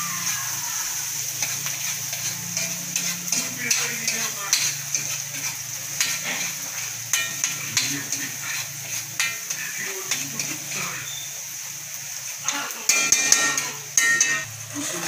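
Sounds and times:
onions sizzling in oil: 0.0s - 15.0s
metal spatula scraping a wok: 1.2s - 11.3s, 12.2s - 15.0s.

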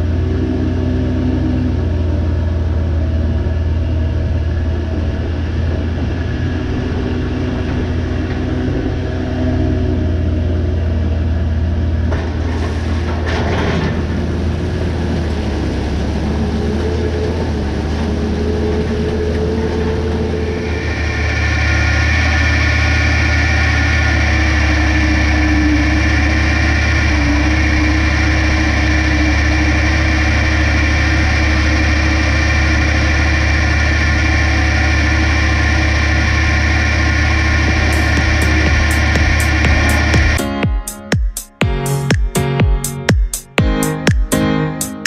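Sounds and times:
tractor engine hum: 0.0s - 41.0s
steady high whine: 19.1s - 44.3s.

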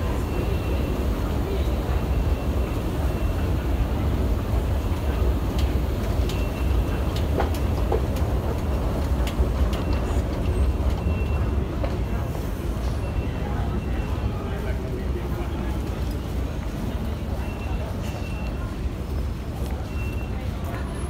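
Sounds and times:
low rumble of escalator: 0.0s - 21.0s
footsteps of people walking: 4.5s - 12.3s.

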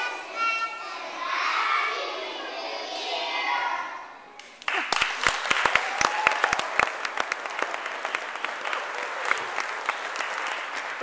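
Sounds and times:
loud close claps: 4.4s - 11.0s
crowd applauding: 4.6s - 11.0s.

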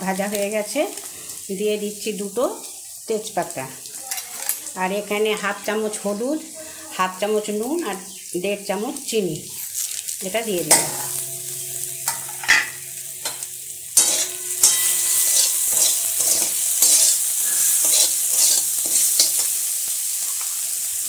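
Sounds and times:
vegetables sizzling in hot oil: 0.0s - 21.0s
metal spatula scraping pan: 10.6s - 19.7s.

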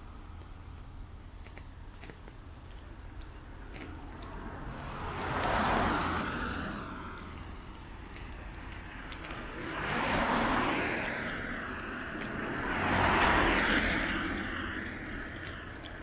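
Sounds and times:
street noise: 0.0s - 16.0s
vehicles passing by: 0.0s - 16.0s.

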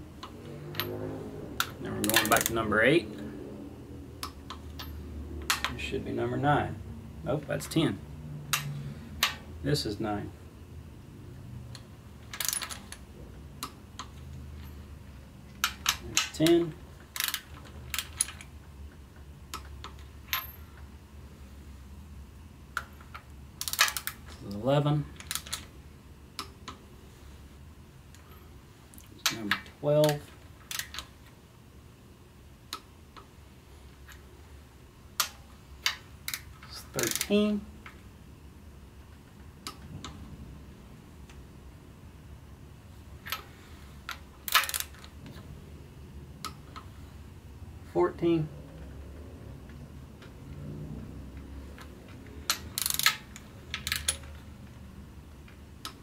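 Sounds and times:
low steady hum: 0.0s - 56.0s
metal clicks of a wrench: 8.5s - 9.4s, 22.8s - 24.5s, 29.0s - 31.1s, 35.2s - 38.0s, 44.1s - 45.1s, 51.8s - 54.4s
torque wrench clicks: 37.0s - 37.3s, 52.5s - 54.2s.

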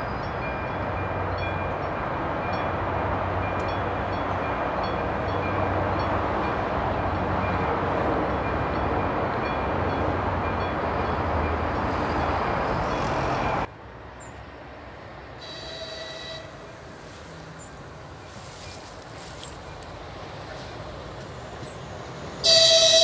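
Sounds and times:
railcar engine and wheels rumbling: 0.0s - 23.0s
distant train horn: 15.4s - 17.2s, 22.3s - 23.0s.

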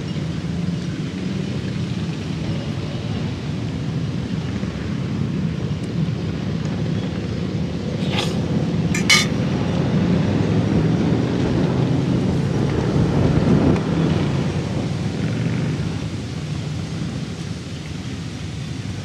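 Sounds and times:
sharp clinks: 9.0s - 9.4s.

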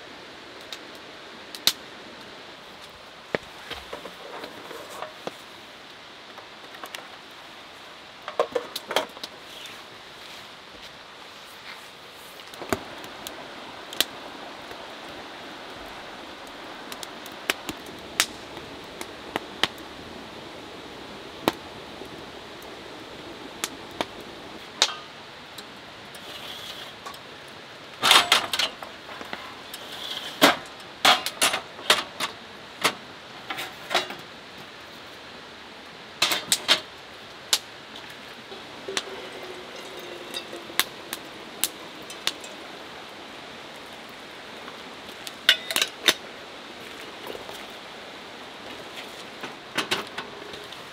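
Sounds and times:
steady hiss: 0.0s - 50.9s
water pouring into kettle: 38.5s - 42.6s.

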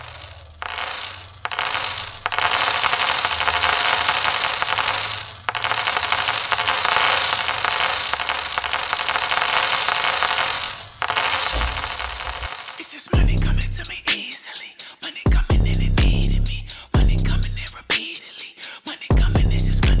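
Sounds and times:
coins jingling: 0.0s - 13.1s.

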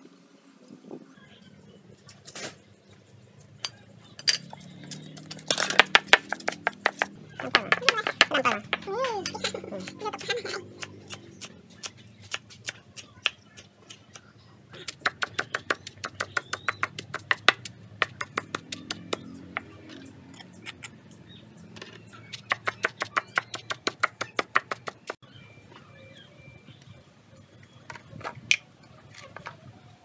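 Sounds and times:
cleaver chopping on wooden block: 14.9s - 19.7s, 22.3s - 25.2s.

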